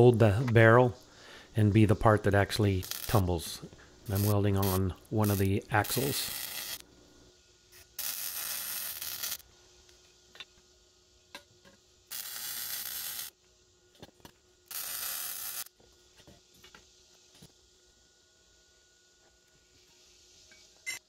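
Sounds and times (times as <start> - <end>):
welder crackling hiss: 2.1 - 6.8, 7.7 - 9.5, 12.1 - 13.4, 14.7 - 15.7.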